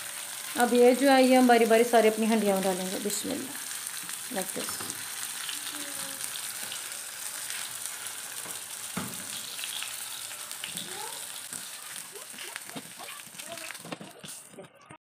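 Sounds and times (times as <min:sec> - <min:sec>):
meat sizzling in hot oil: 0:00.0 - 0:14.6.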